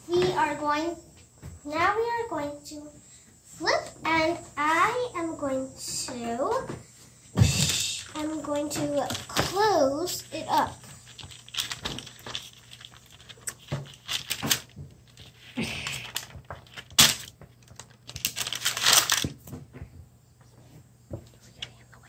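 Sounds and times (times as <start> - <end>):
scraping and rustling: 5.9 - 19.5.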